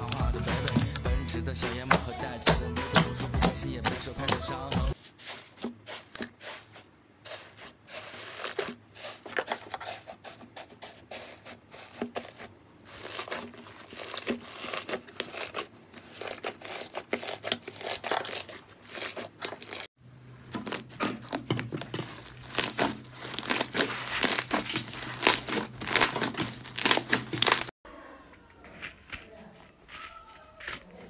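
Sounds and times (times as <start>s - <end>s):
slime crackling and crunching: 7.3s - 9.8s, 11.2s - 19.9s, 20.5s - 27.8s.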